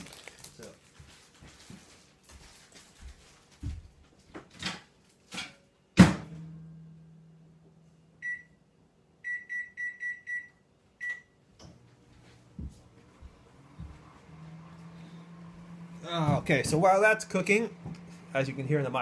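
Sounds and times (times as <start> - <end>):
microwave humming: 5.9 - 19.0
keypad beeps: 9.3 - 11.3.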